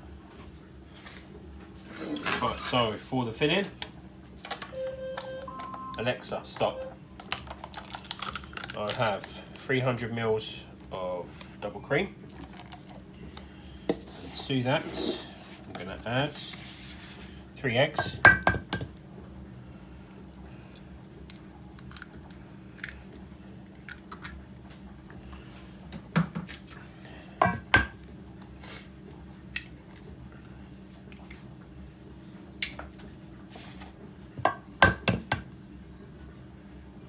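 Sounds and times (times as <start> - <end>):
faint low hum: 4.5 - 18.2
eggs tapping on metal bowl: 34.4 - 35.5.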